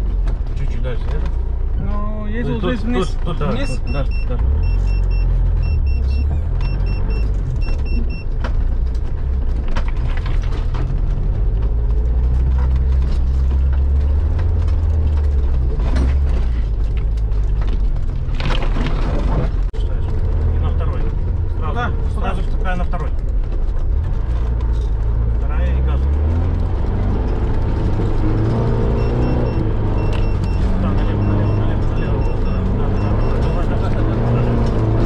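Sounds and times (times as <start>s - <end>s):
off-road vehicle engine droning: 0.0s - 35.0s
short electronic beeps: 3.6s - 8.3s, 28.8s - 34.6s.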